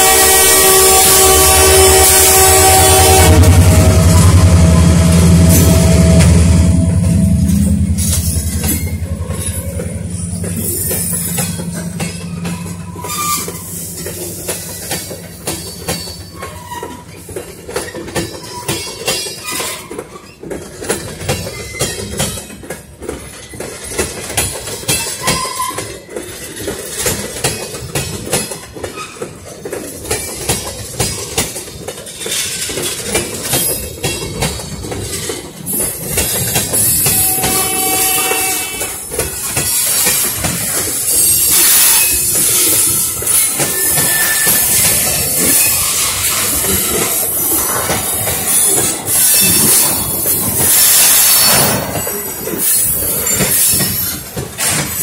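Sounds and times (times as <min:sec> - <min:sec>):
train wheels clanking over rail joints: 0:00.0 - 0:55.0
thin wheel squeals: 0:12.4 - 0:13.8, 0:41.1 - 0:47.0.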